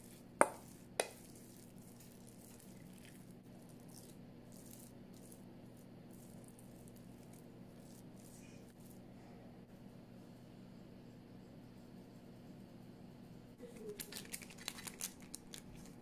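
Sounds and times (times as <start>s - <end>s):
spoon stirring sticky filling: 0.0s - 9.1s
steady low hum: 0.0s - 14.0s
metal spoon knocking on steel bowl: 0.4s - 1.2s.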